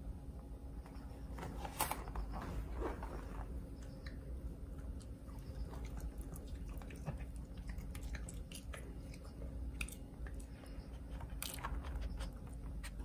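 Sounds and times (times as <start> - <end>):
dog mouth sounds eating: 5.0 - 13.0.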